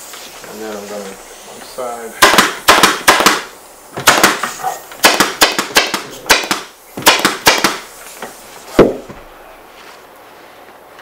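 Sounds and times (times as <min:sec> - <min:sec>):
pneumatic staple gun firing: 0:02.2 - 0:07.9.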